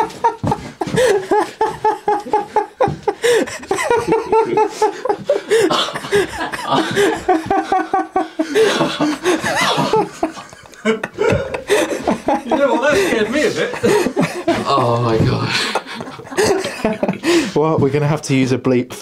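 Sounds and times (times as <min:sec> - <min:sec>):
men laughing: 0:00.0 - 0:17.6.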